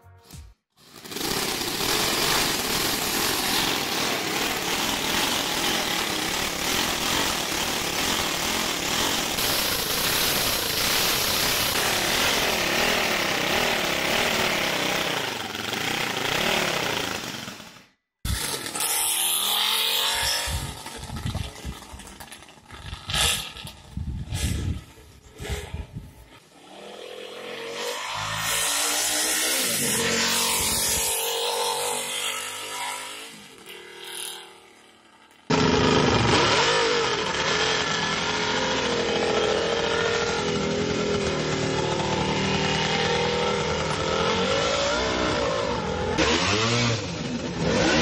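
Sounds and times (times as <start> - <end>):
motorcycle running on street: 0.7 - 48.0
radial engine revving: 1.0 - 17.2.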